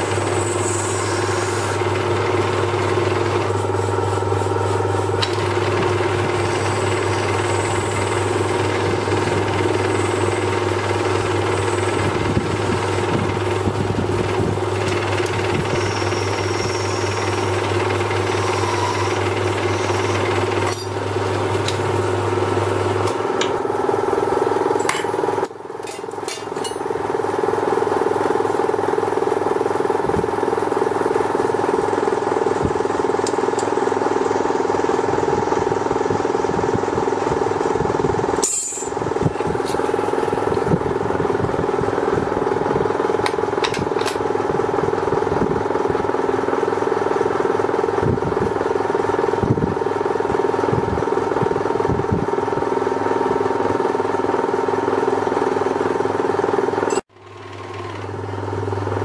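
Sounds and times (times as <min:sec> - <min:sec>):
lathe running: 0:00.0 - 0:25.4, 0:56.5 - 0:59.0.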